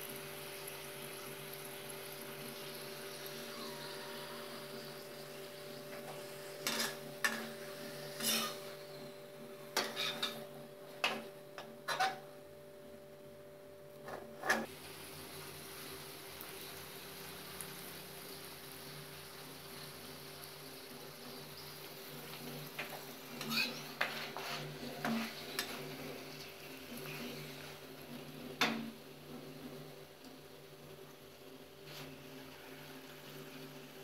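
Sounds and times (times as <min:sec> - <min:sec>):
steady hum: 0:00.0 - 0:14.7
metal spatula scraping pan: 0:06.0 - 0:08.8, 0:09.8 - 0:11.2, 0:11.9 - 0:12.2, 0:23.3 - 0:26.0.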